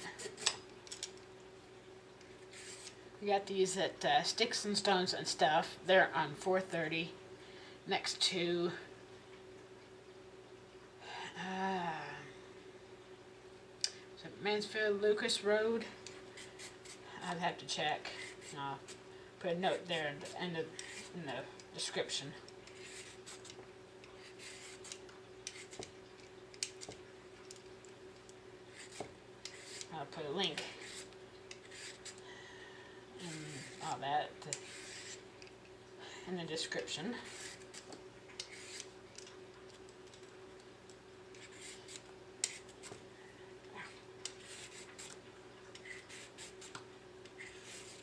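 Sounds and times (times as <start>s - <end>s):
vegetable peeler scraping: 0.0s - 0.6s, 2.5s - 3.0s, 16.0s - 17.4s, 18.0s - 25.9s, 28.7s - 32.2s, 33.2s - 35.5s, 36.6s - 39.3s, 41.3s - 43.0s, 44.2s - 48.0s
steady low hum: 0.0s - 48.0s.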